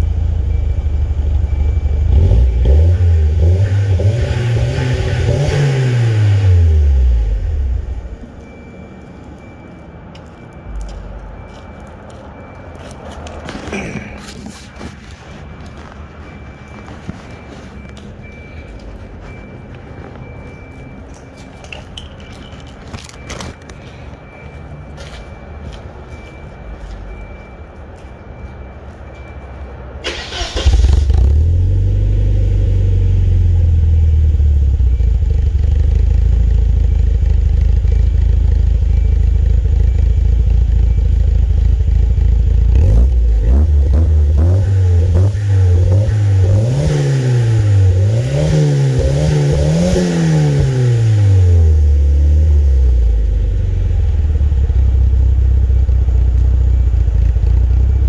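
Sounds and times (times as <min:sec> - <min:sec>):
car engine idling and revving: 0:00.0 - 0:58.0
car engine cranking: 0:30.0 - 0:32.0.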